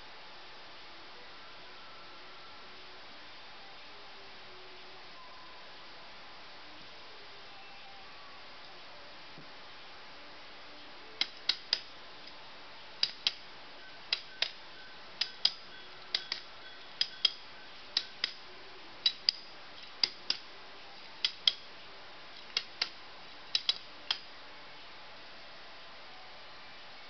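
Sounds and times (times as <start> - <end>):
ratchet buckle clicking: 15.2 - 17.4, 19.0 - 20.4, 21.2 - 21.6, 22.4 - 24.2.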